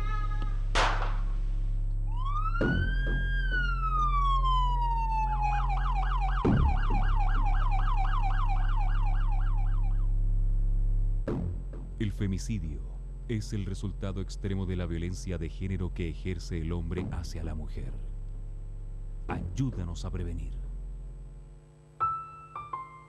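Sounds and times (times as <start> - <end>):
steady low hum: 0.0 - 22.1
low thumps: 0.5 - 5.0, 5.8 - 7.8, 10.9 - 12.0
siren wailing and yelping: 2.1 - 10.1.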